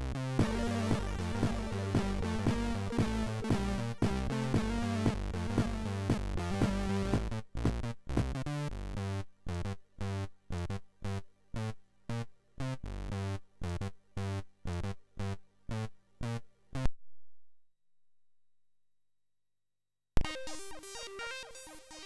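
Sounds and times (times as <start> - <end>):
chiptune synth music: 0.0 - 10.3, 20.2 - 22.0.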